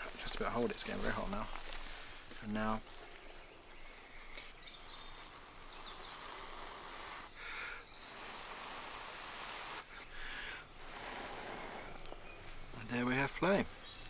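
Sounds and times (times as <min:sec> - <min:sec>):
faint bird chirps: 0:00.4 - 0:14.0
breath blown into tinder: 0:05.9 - 0:12.4.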